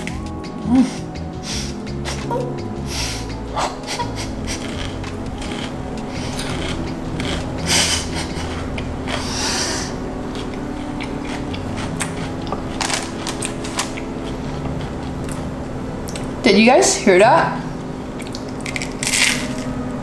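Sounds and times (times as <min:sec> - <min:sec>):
crunching and chewing fried food: 0:04.2 - 0:16.4, 0:18.1 - 0:19.9.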